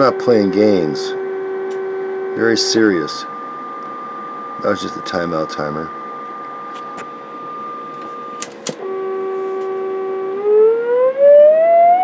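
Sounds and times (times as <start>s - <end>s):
audio test tone: 7.3s - 12.0s.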